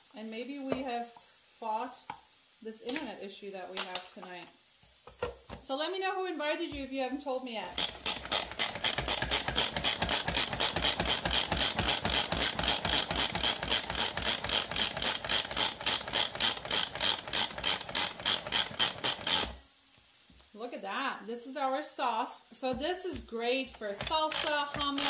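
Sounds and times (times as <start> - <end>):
manual food processor clicking: 7.7 - 19.6, 24.0 - 25.0.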